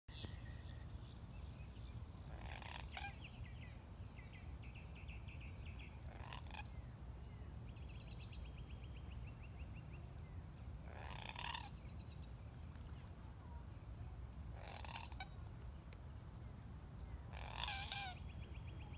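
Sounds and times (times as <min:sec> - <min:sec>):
harsh bird calls: 0:02.3 - 0:03.7, 0:05.5 - 0:06.9, 0:10.9 - 0:12.0, 0:14.6 - 0:15.4, 0:17.3 - 0:18.9
chattering bird trills: 0:02.4 - 0:03.3, 0:14.6 - 0:15.3, 0:17.4 - 0:18.2.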